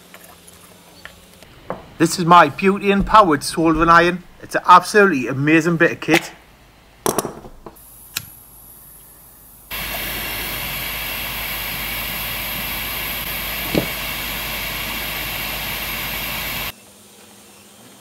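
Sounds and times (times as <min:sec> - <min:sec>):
burning gas hissing: 0:07.7 - 0:16.7
soldering iron igniter clicks: 0:08.1 - 0:08.4.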